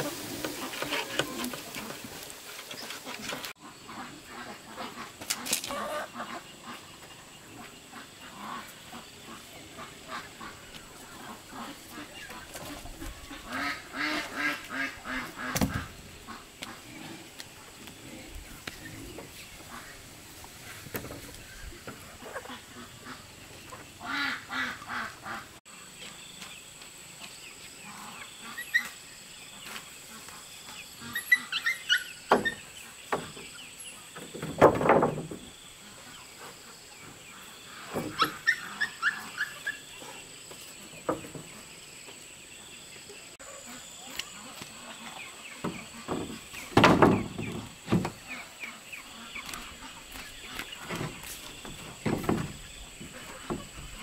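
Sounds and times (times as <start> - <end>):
wooden boards knocking and scraping: 0.0 - 3.5, 34.2 - 35.5, 45.6 - 48.3, 49.4 - 54.0
birds chirping: 0.0 - 54.0.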